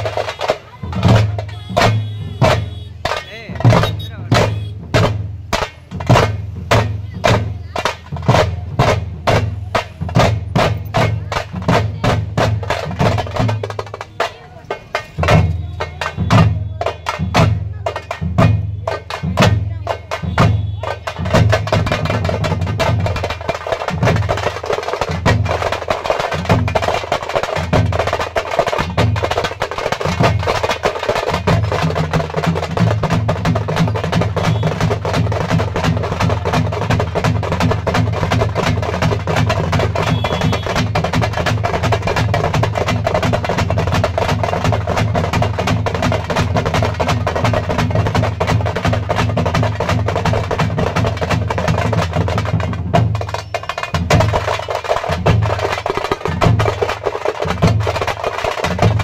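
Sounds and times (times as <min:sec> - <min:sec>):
drum troupe drumming: 0:00.0 - 0:59.0.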